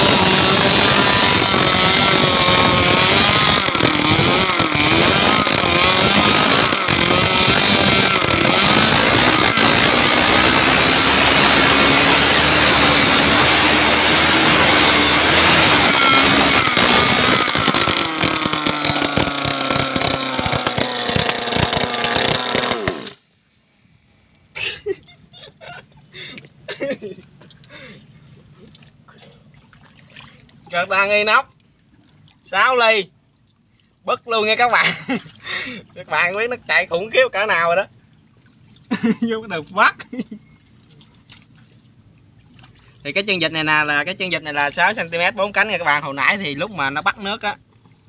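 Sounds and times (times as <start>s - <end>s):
small petrol engine revving: 0.0s - 23.2s
water churning and splashing: 0.0s - 23.2s, 27.3s - 43.6s, 46.8s - 48.0s.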